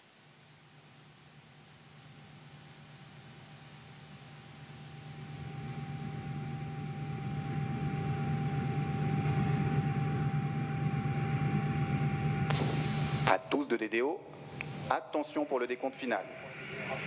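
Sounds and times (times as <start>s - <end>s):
low hum: 0.8s - 13.5s.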